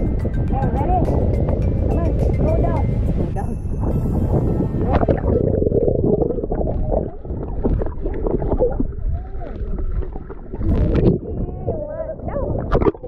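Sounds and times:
muffled underwater sloshing: 0:03.8 - 0:13.0.

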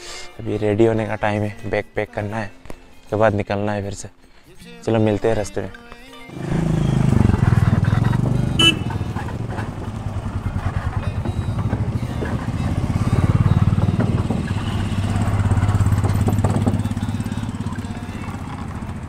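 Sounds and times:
motorcycle engines running slowly: 0:06.3 - 0:19.0
bikes rolling over wooden planks: 0:09.0 - 0:17.0.

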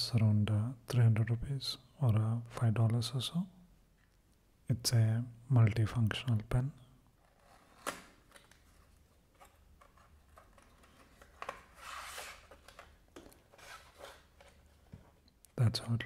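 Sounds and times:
cardboard scraping and rustling: 0:09.4 - 0:15.2.

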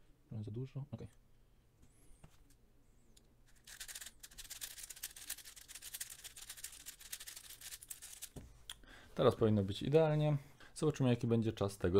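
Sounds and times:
plastic puzzle cube clicking: 0:03.7 - 0:08.3.

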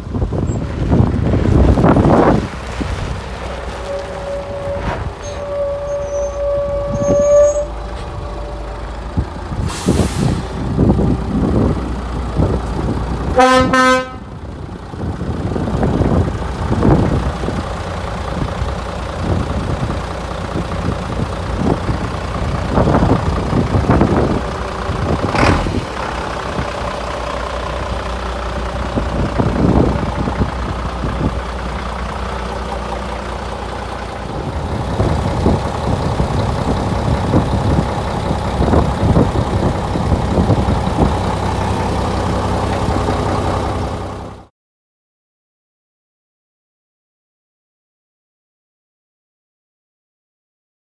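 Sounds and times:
truck diesel engine running: 0:00.0 - 0:44.5
horn toot: 0:03.8 - 0:08.7, 0:13.4 - 0:14.3
compressed air hiss: 0:09.6 - 0:10.6.

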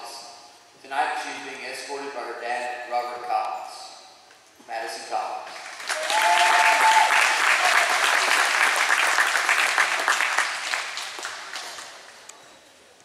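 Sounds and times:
crowd applause: 0:05.6 - 0:12.3.

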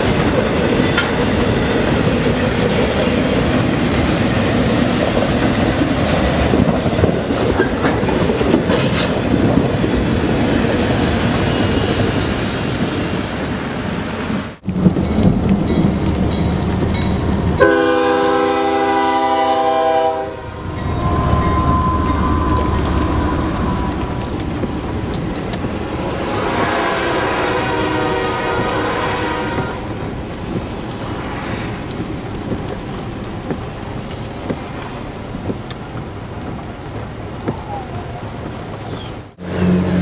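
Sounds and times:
wheels clattering over rail joints: 0:00.0 - 0:12.8, 0:14.6 - 0:17.7, 0:28.4 - 0:39.4
freight train rumbling past: 0:00.0 - 0:40.0
locomotive horn blast: 0:17.6 - 0:24.3, 0:26.3 - 0:30.0, 0:39.4 - 0:40.0.

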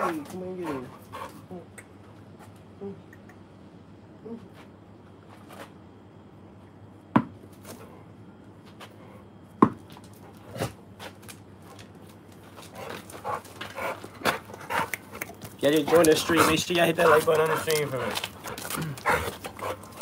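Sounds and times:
tennis ball knocking on paving: 0:07.1 - 0:07.4, 0:09.6 - 0:09.9
scuffling: 0:10.5 - 0:20.0.

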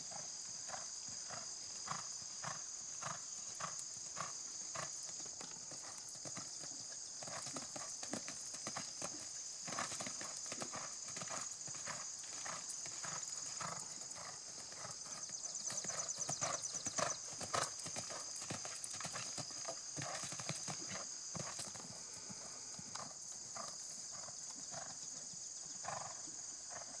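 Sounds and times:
horse hoofbeats on sand: 0:00.7 - 0:21.9.

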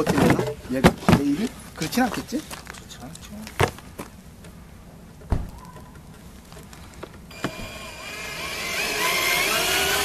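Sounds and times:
cordless drill motor whine: 0:07.3 - 0:10.0.

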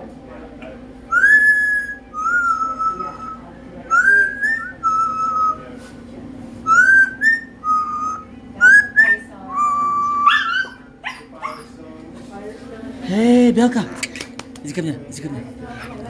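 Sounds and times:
parrot whistling: 0:01.1 - 0:05.7, 0:06.6 - 0:11.7.

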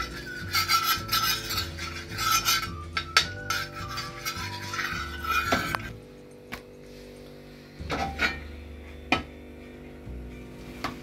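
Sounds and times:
spoon scraping griddle: 0:00.0 - 0:06.0.

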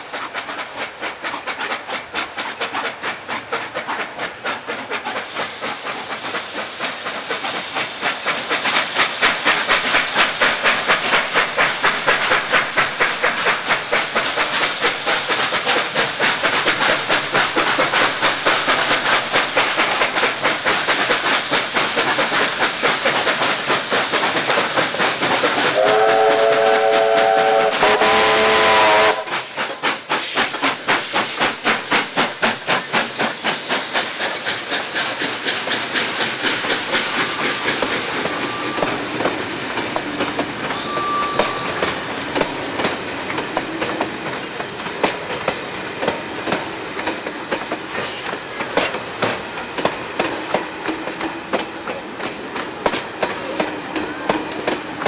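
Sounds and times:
steam exhaust chuffs: 0:00.0 - 0:49.8
carriage wheels clickety-clack: 0:00.0 - 0:55.0
loud steam hiss: 0:00.0 - 0:55.0
steam whistle: 0:25.7 - 0:29.5, 0:40.7 - 0:41.9.

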